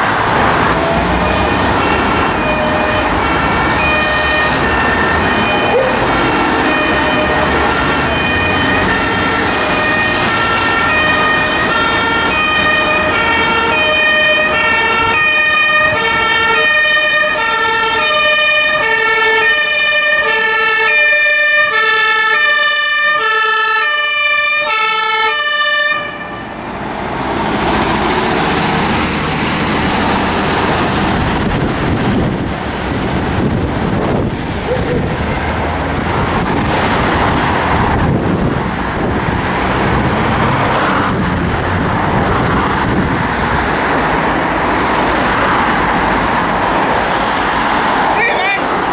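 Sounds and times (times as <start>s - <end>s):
traffic rush: 0.0s - 48.9s
two-tone fire engine siren: 0.0s - 48.9s
wind noise: 27.5s - 47.8s.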